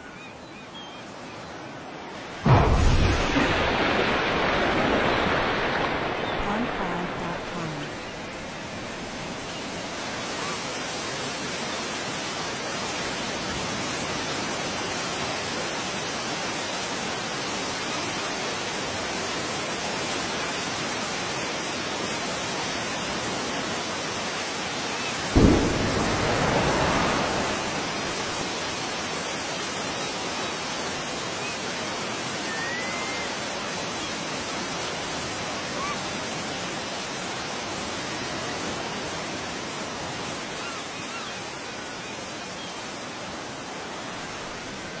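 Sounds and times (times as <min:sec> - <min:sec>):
deep explosion boom: 0:02.5 - 0:06.6, 0:25.4 - 0:28.8
steady rushing noise: 0:25.3 - 0:30.0.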